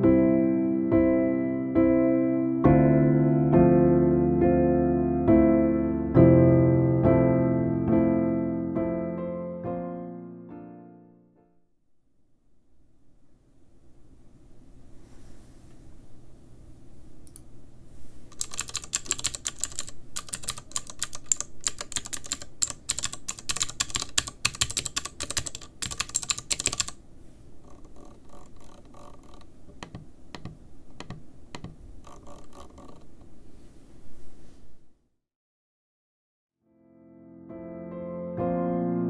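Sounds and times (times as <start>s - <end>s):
keyboard keys clacking: 18.3s - 27.0s.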